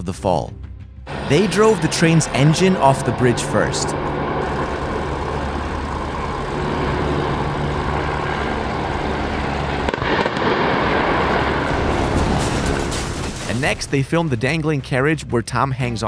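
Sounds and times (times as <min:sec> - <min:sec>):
steady noisy rumble: 0:01.1 - 0:14.1
locomotive crashing into water: 0:11.6 - 0:14.5.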